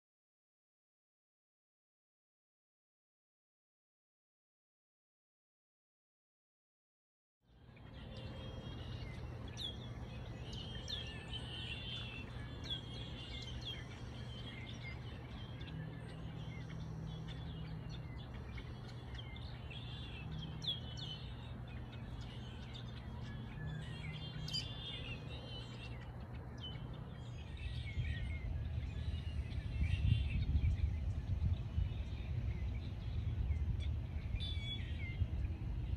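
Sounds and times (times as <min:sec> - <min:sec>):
low outdoor rumble: 0:07.5 - 0:35.9
small birds chirping: 0:07.5 - 0:35.9.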